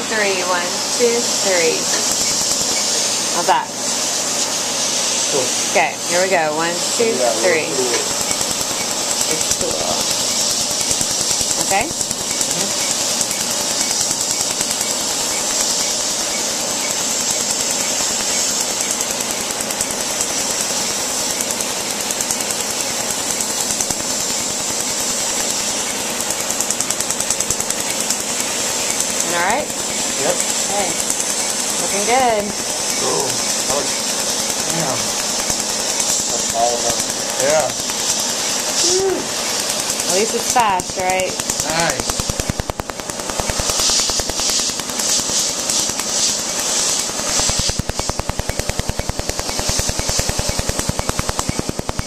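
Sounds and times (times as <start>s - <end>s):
air hissing from hose: 0.0s - 52.0s
laser firing sharp snaps: 1.5s - 3.7s, 7.9s - 52.0s.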